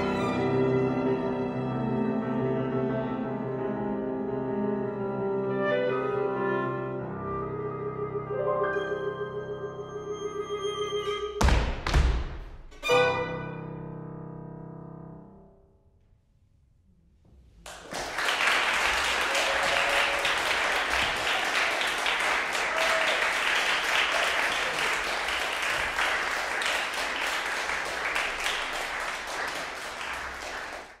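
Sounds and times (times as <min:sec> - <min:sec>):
piano clarinet and violin chord: 0:00.0 - 0:11.4
audience applause: 0:17.6 - 0:31.0.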